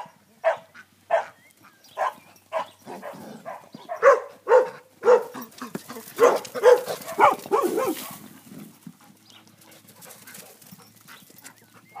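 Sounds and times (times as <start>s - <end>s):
dogs barking: 0.0s - 8.2s
dogs scuffling: 5.0s - 11.9s.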